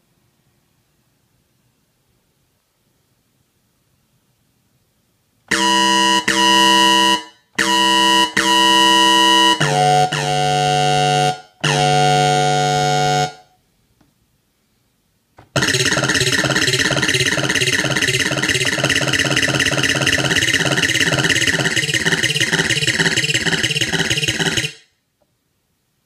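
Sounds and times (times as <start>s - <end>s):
synthesizer held notes: 5.5s - 13.6s, 15.4s - 24.9s.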